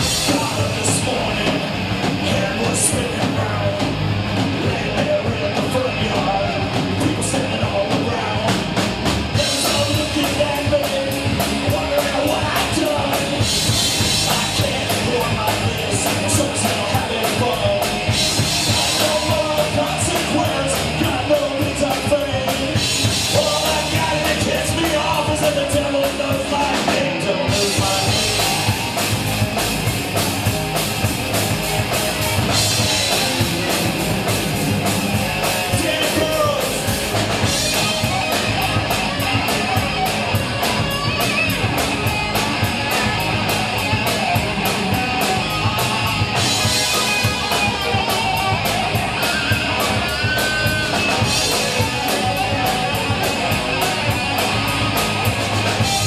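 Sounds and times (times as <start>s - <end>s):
person singing: 0.0s - 4.0s, 4.6s - 29.1s, 35.1s - 41.8s
driving drum kit: 0.0s - 56.0s
rock band playing: 0.0s - 56.0s.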